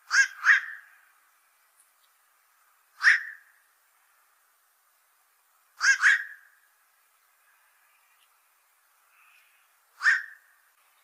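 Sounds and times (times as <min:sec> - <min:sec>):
heron harsh calls: 0:00.0 - 0:01.0, 0:03.0 - 0:03.5, 0:05.8 - 0:06.5, 0:09.9 - 0:10.5.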